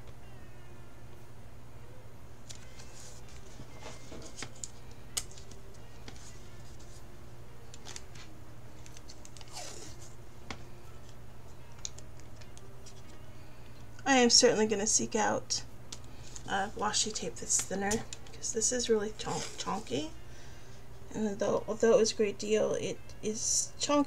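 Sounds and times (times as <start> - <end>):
steady low hum: 0.0 - 24.0
tape clicks and rustles: 2.4 - 7.0, 7.6 - 13.2
tape peeling: 7.7 - 10.2.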